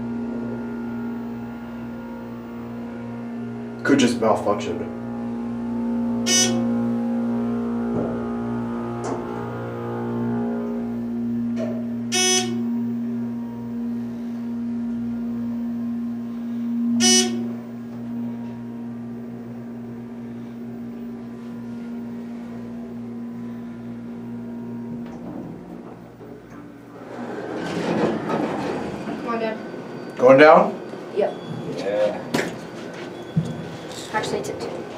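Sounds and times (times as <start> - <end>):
elevator electric hum: 0.0 - 34.9
short electronic beeps: 17.0 - 17.5.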